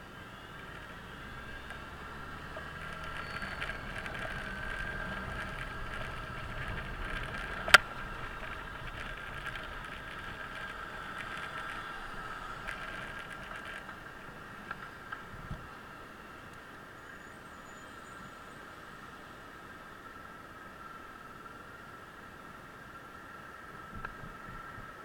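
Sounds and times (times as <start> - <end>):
scooter engine running: 0.7 - 14.5
soft ticks: 1.5 - 14.0.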